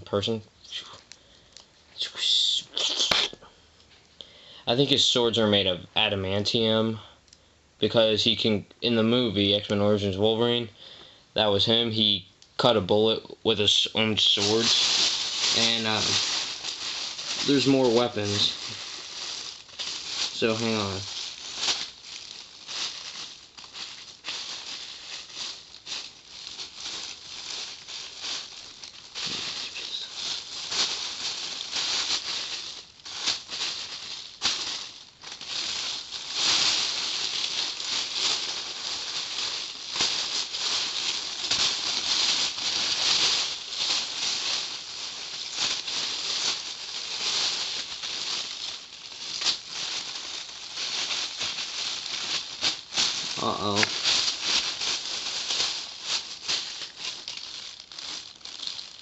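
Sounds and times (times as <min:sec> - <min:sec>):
plastic toy pieces rattling: 0:14.2 - 0:59.0.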